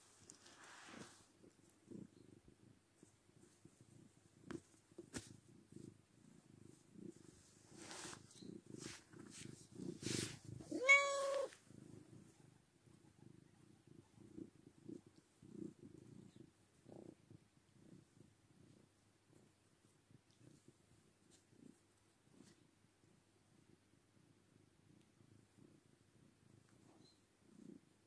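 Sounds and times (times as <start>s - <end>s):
rustles of handling: 0.0s - 1.8s, 7.1s - 11.6s
cat purring: 0.0s - 28.0s
cat meowing: 10.6s - 11.6s.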